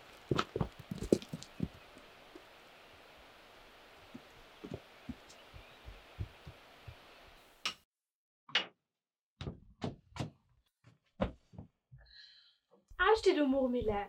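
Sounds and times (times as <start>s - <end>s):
footsteps on forest path: 0.0s - 2.5s, 4.0s - 7.0s
steady outdoor hiss: 0.0s - 7.6s.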